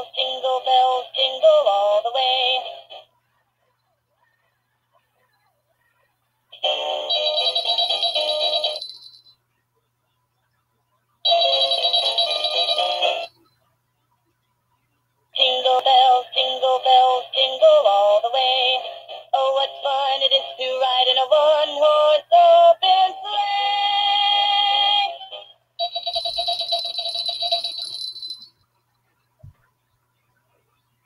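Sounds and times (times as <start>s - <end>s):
toy singing with music: 0.0s - 3.1s, 6.5s - 9.2s, 11.2s - 13.4s, 15.4s - 28.5s.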